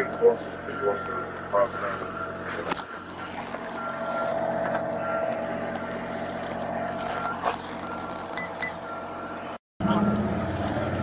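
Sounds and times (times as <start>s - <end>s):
short electronic beeps: 3.2s - 4.4s, 7.0s - 10.2s.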